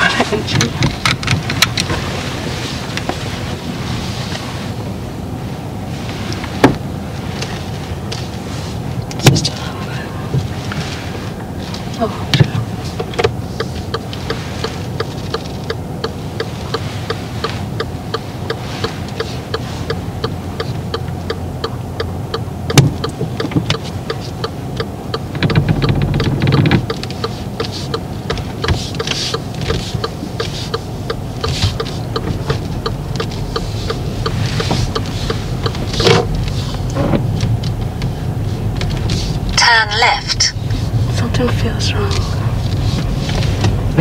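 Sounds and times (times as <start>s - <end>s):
car cabin engine and road noise: 0.0s - 44.0s
regular ticking: 12.3s - 44.0s.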